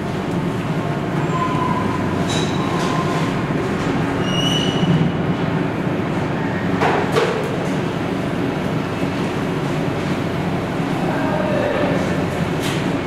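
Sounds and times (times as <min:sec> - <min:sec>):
mechanical rumble: 0:00.0 - 0:06.8.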